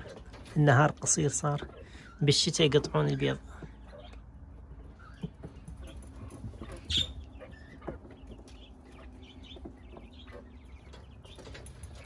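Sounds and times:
faint quail calls: 0:01.4 - 0:11.0.

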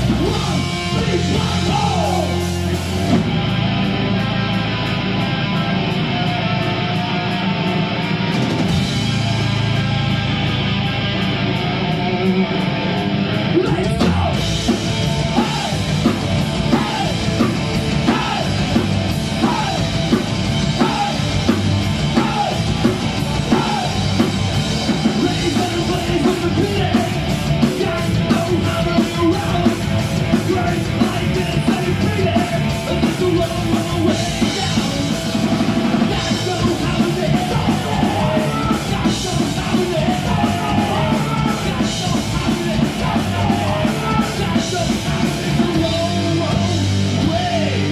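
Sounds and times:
drums steady beat: 0:00.0 - 0:05.1, 0:08.3 - 0:10.8, 0:13.7 - 0:47.9
distorted electric guitar: 0:00.0 - 0:47.9
person singing: 0:36.0 - 0:47.9.

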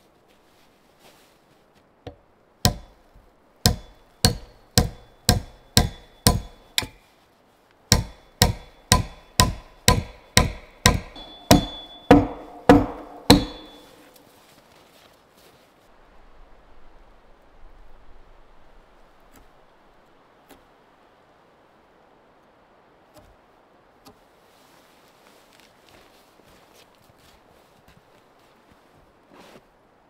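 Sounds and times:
hammer striking log wall: 0:02.1 - 0:03.0, 0:03.6 - 0:07.0, 0:07.9 - 0:14.2.

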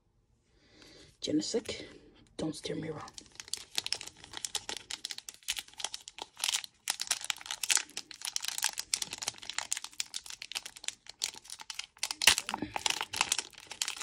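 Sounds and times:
foil wrapper crinkling: 0:03.1 - 0:14.0.

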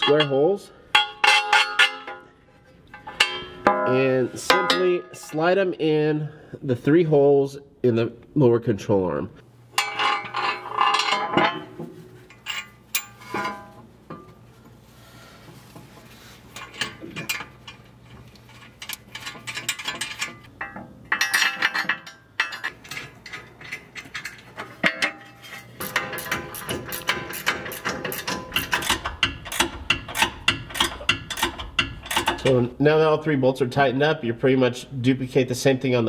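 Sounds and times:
metal hardware clinking: 0:00.0 - 0:05.4, 0:09.7 - 0:14.4, 0:16.5 - 0:32.7.

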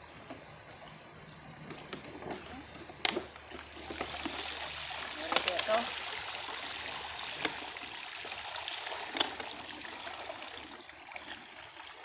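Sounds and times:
water pouring and trickling: 0:03.5 - 0:12.0.

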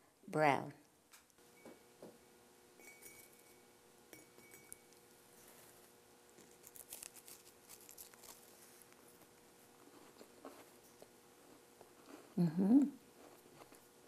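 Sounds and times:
faint room hum: 0:00.0 - 0:14.0
ceramic mug clinks: 0:02.8 - 0:04.9
cookie crunching: 0:04.4 - 0:12.4, 0:13.0 - 0:14.0.

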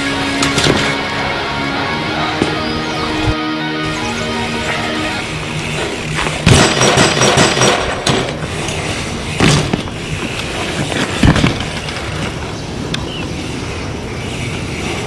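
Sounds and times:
bike thudding on road: 0:00.0 - 0:01.3, 0:05.2 - 0:15.0
bike tyres rolling on asphalt: 0:00.0 - 0:03.0, 0:04.4 - 0:06.8, 0:07.7 - 0:15.0.

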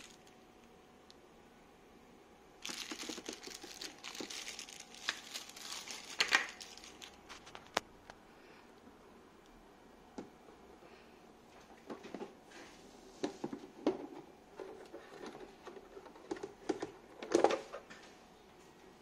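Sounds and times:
plastic wrap rustling: 0:00.0 - 0:00.4, 0:02.6 - 0:07.8
plastic parts clicking and tapping: 0:13.2 - 0:17.6.

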